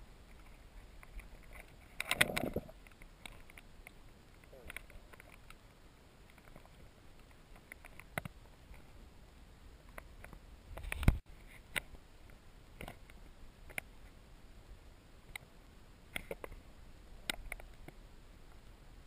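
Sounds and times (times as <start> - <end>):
sharp underwater clicks and ticks: 0.2 - 8.9, 9.9 - 13.9, 16.1 - 16.6, 17.2 - 18.7.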